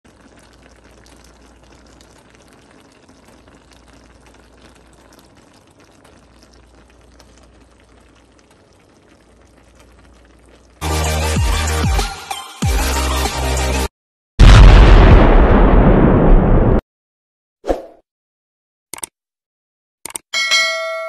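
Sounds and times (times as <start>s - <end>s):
pan simmering with bubbling: 0.1s - 11.9s.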